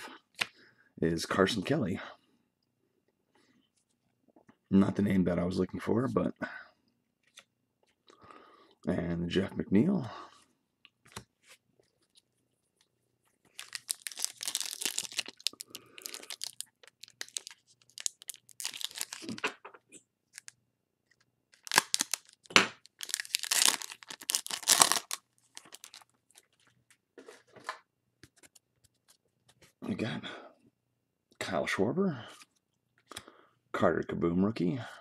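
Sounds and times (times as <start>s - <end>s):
foil wrapper tearing and crinkling: 13.5s - 19.4s, 20.3s - 20.5s, 21.5s - 26.6s.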